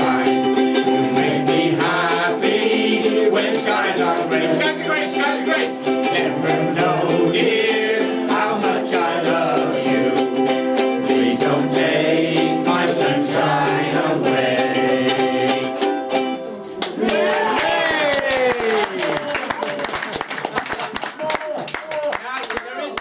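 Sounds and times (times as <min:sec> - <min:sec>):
voices singing along: 0:00.0 - 0:16.3
ukuleles strumming chords: 0:00.0 - 0:18.5.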